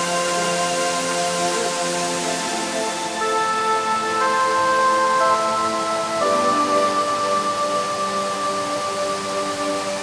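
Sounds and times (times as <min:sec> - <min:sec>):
slow long-held music notes: 0:00.0 - 0:10.0.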